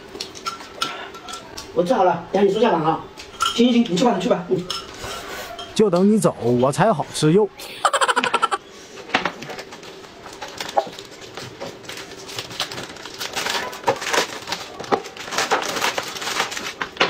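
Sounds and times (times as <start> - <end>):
packaging crinkling and clicking: 10.3 - 17.0.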